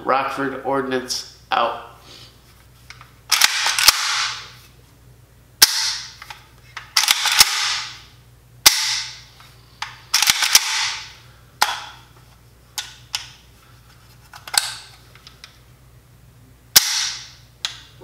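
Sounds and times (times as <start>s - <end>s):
rifle action metallic clacks: 3.3s - 4.4s, 5.6s - 8.0s, 10.1s - 11.9s.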